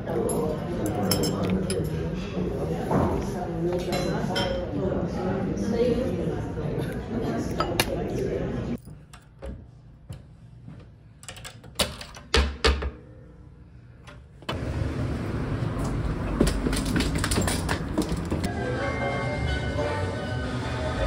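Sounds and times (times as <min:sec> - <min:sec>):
street traffic hum: 0:14.5 - 0:18.5.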